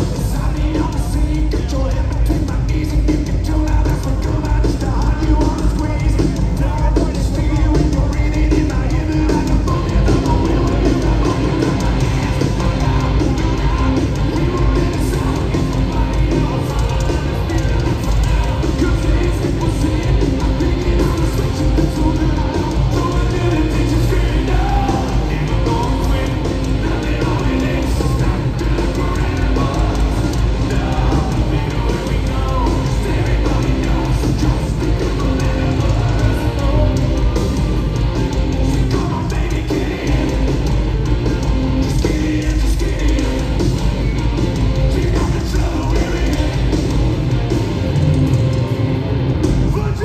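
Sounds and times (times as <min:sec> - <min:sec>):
person singing: 0:00.0 - 0:41.2
live hard rock band: 0:00.0 - 0:50.0.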